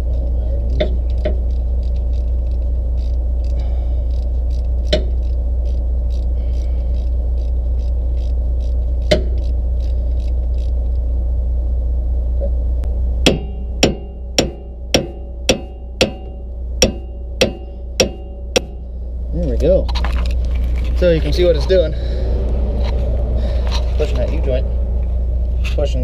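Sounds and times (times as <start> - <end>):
engine idling: 0.0 - 26.0
hand wrench clicking: 0.8 - 10.8
hard metal strike: 13.2 - 19.0.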